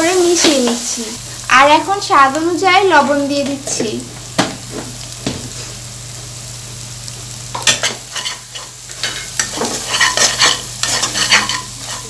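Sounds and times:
onions sizzling in oil: 0.0s - 12.0s
metal spatula scraping a pan: 7.6s - 12.0s.

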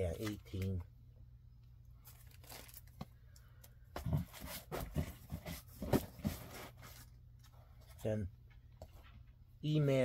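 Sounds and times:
low room hum: 0.0s - 10.0s
plastic bags crinkling: 2.0s - 3.2s.

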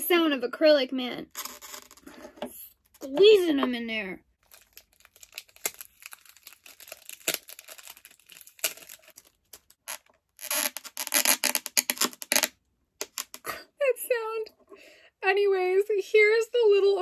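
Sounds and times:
acrylic pieces clicking and rubbing: 4.4s - 13.4s
hard plastic scraping: 7.4s - 13.4s.

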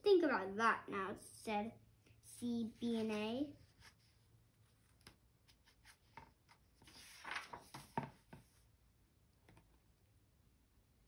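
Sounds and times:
book page turning: 2.8s - 8.6s.

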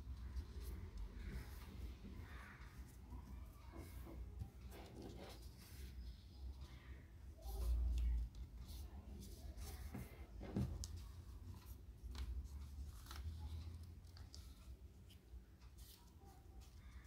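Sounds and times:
paper rustling and crinkling: 7.4s - 17.0s.

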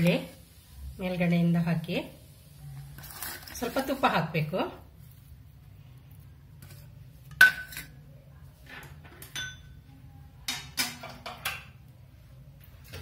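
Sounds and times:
metal utensils clinking: 8.8s - 9.8s.

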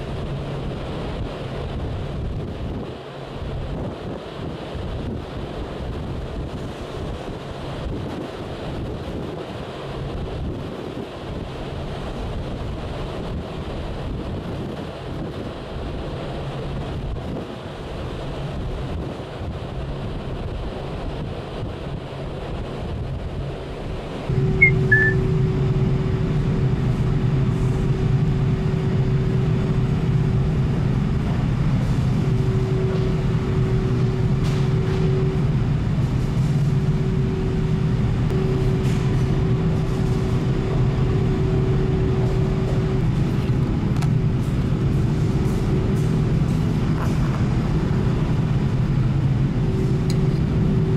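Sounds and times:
ferry engines droning: 0.0s - 50.9s
sea noise: 0.0s - 50.9s
wind: 0.0s - 50.9s
hum tone: 24.3s - 26.4s, 32.3s - 35.5s, 36.6s - 43.2s
brief high chirp: 24.6s - 25.2s.

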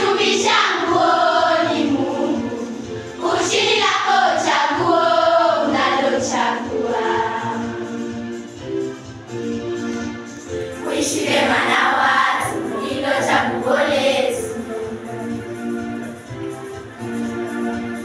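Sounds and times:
girls' choir singing: 0.0s - 8.2s, 10.7s - 15.6s.

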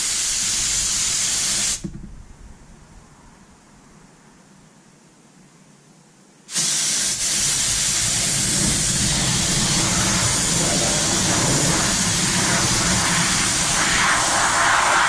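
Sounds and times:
spray gun hissing: 0.0s - 1.9s, 6.5s - 15.0s.

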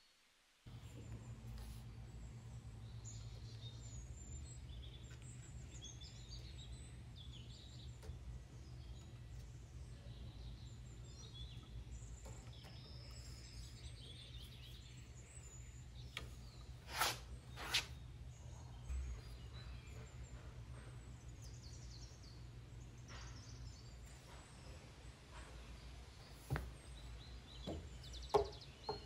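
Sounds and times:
low background hum: 0.5s - 29.0s
birds chirping: 0.7s - 29.0s
dull thump: 26.4s - 26.8s.

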